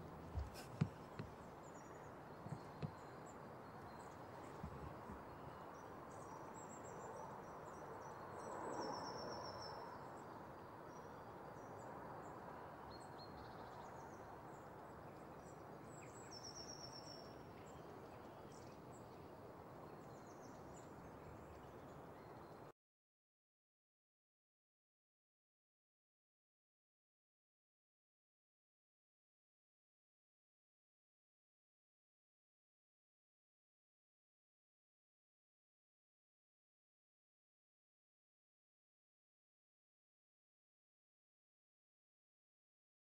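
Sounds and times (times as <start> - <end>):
distant birds chirping: 0.0 - 5.9.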